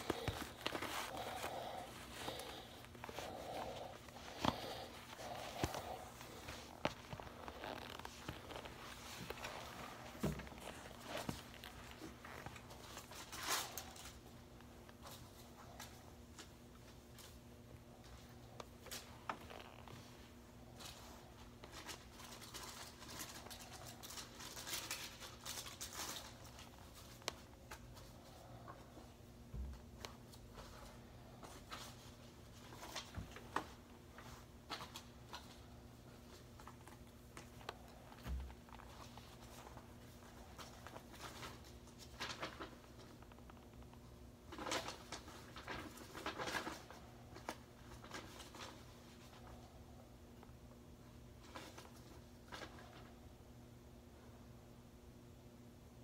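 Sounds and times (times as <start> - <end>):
fabric rustling: 0.0 - 14.2
low electrical hum: 0.0 - 56.0.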